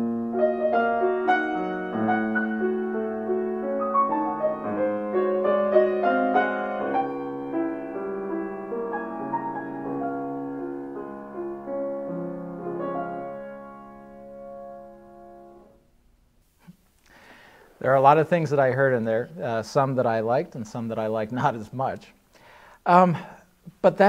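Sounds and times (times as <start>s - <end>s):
slow soft piano: 0.0s - 16.1s.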